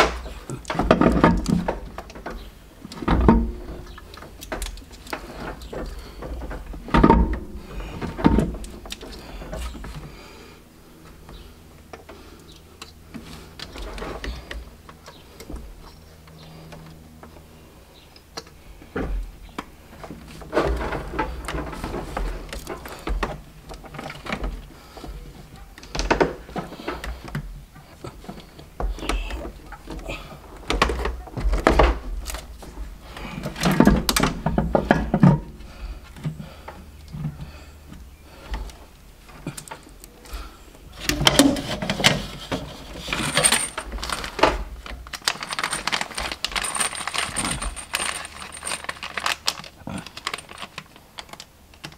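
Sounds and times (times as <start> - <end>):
metal parts knocking and clinking: 41.0 - 51.9.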